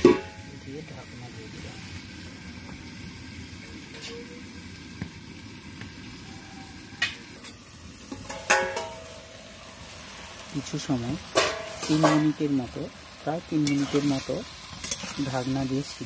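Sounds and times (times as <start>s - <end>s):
metal lid clanging on pan: 0.0s - 0.5s, 7.0s - 9.3s, 11.3s - 12.4s
curry sizzling in a pan: 0.0s - 16.0s.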